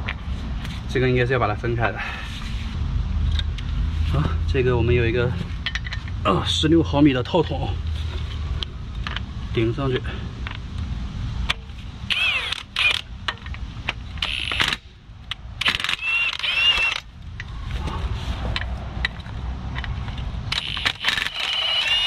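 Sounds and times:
impact wrench whining: 12.1 - 13.5, 14.1 - 15.0, 15.6 - 17.1, 20.5 - 22.0.

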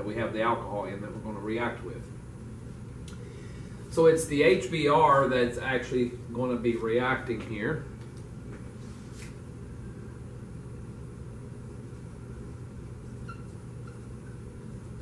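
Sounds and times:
low room hum: 0.0 - 15.0
marker squeaking on whiteboard: 13.2 - 13.6.

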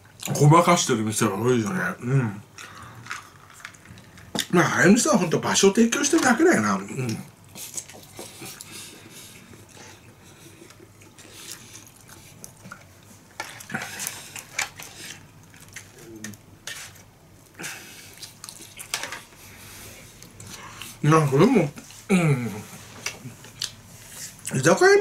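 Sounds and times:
person chewing: 6.9 - 16.4, 17.4 - 21.0, 22.4 - 24.5.

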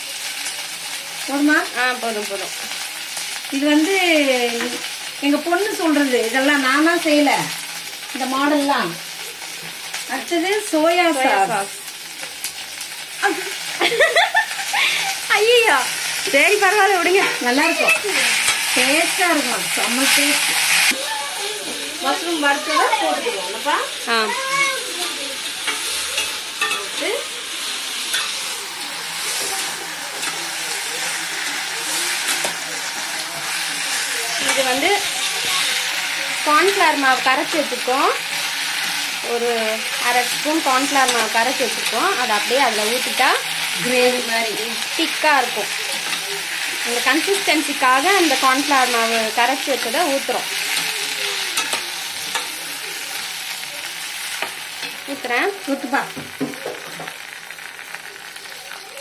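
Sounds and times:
vegetables sizzling in a pan: 0.0 - 59.0
spoon scraping a pan: 16.0 - 21.0, 25.5 - 36.8, 44.8 - 55.2.

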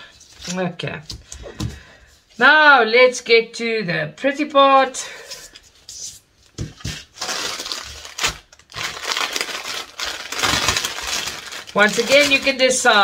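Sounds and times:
plastic bag crinkling: 7.0 - 13.0.

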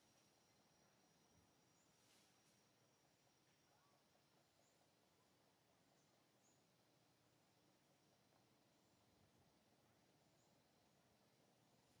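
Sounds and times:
faint high chirps: 0.0 - 5.3
faint background hiss: 0.0 - 12.0.

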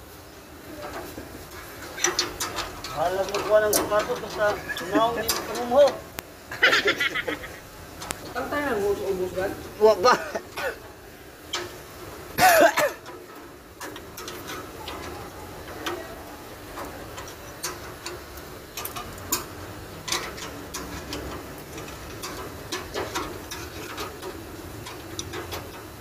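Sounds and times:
light clicks and taps: 8.0 - 8.5
man coughing: 10.1 - 10.9, 12.4 - 13.0.

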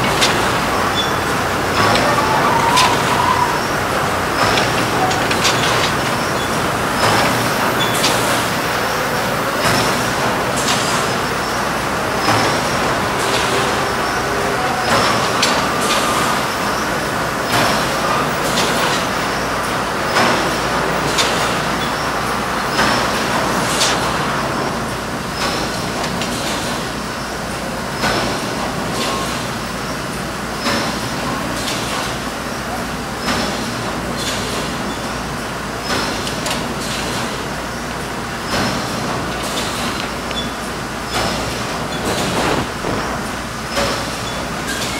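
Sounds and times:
steady mechanical din: 0.0 - 18.9, 41.1 - 44.8
sharp machine clack: 0.0 - 19.4, 38.4 - 44.9.

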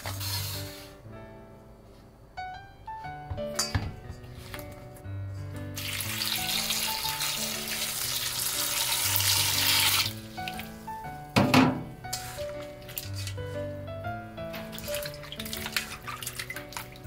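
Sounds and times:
background music: 0.0 - 17.0
water pouring into metal bowl: 5.8 - 10.7, 14.7 - 17.0.

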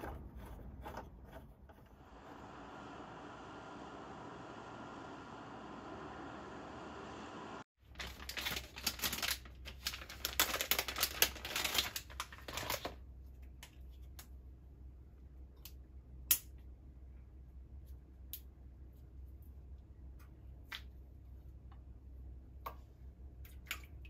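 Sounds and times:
plastic packaging crinkling: 7.8 - 13.0.

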